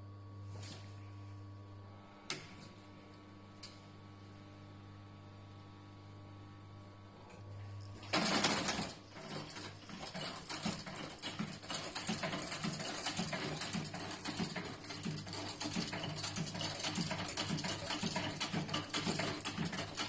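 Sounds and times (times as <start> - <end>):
electric motor hum: 0.0 - 8.1
sewing machine clatter: 8.0 - 20.0.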